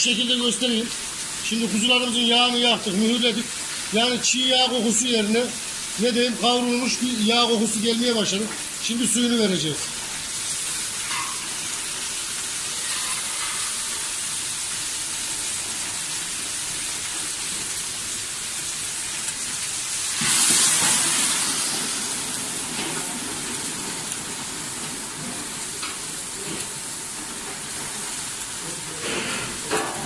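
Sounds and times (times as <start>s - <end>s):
hissing steam: 0.0s - 30.0s
meat sizzling in a pan: 0.0s - 30.0s
water poured into hot pan: 9.8s - 30.0s.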